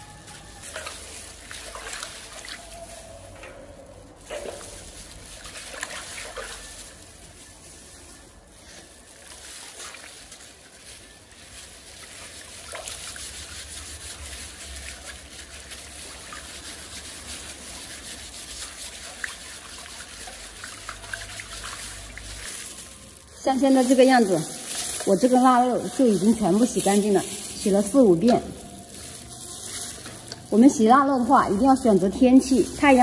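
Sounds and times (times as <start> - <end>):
scrubbing with a scouring pad: 0.0 - 33.0
water sloshing in a metal basin: 0.0 - 33.0.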